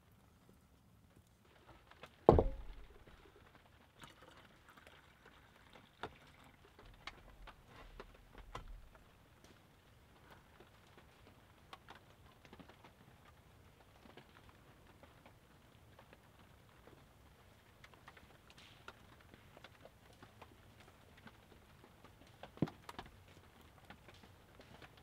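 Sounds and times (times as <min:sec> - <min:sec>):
cookware and utensil knocks: 0:02.3 - 0:02.9.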